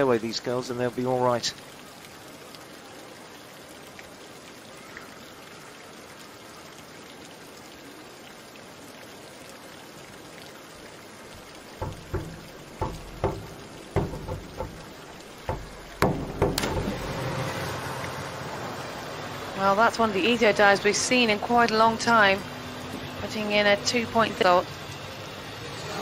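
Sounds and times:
dull thumps and knocks: 0:11.8 - 0:17.3.

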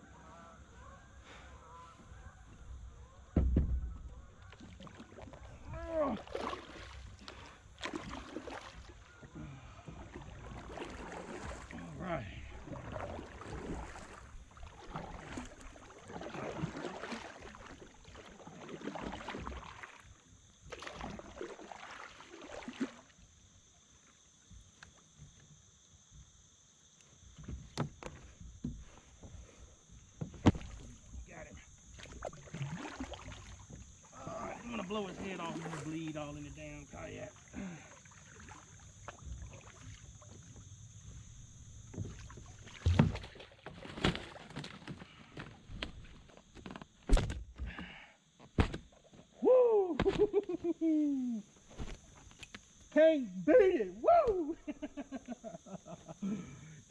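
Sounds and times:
paddle clunk against hull: 0:02.5 - 0:05.4, 0:27.4 - 0:29.4, 0:30.1 - 0:34.0, 0:41.8 - 0:49.3
paddle splashing through water: 0:03.1 - 0:23.2, 0:30.2 - 0:47.8
water dripping and lapping: 0:03.6 - 0:23.4, 0:27.0 - 0:52.9.

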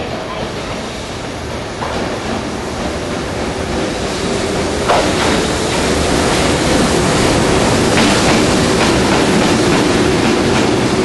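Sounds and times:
train rolling rumble: 0:00.0 - 0:11.0.

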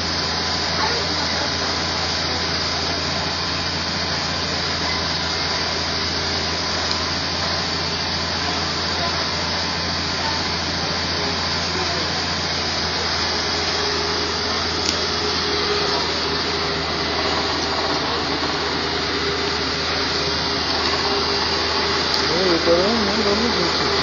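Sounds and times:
hydraulic crane whine: 0:00.0 - 0:24.0
truck engine hum: 0:00.0 - 0:24.0.

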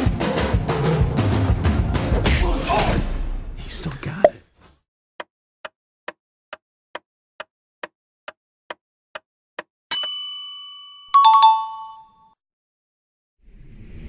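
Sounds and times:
chime strikes: 0:09.9 - 0:12.0
bell ding: 0:09.9 - 0:12.3.

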